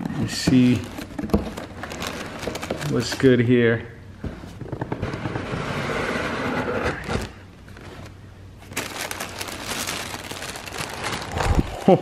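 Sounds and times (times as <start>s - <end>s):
tissue paper crinkling: 0.5s - 3.4s, 7.2s - 11.8s.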